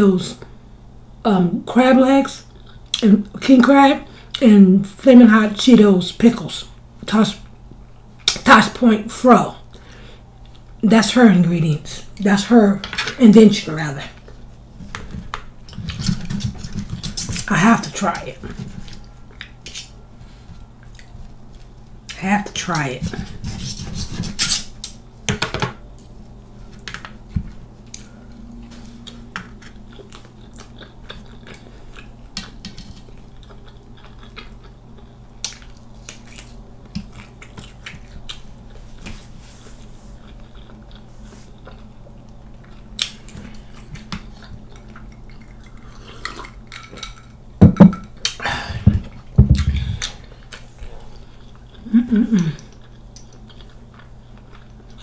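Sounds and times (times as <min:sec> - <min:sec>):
steady low hum: 0:00.0 - 0:55.0
chewing and mouth clicks: 0:20.8 - 0:21.7, 0:29.0 - 0:39.1, 0:40.2 - 0:47.4, 0:50.0 - 0:55.0.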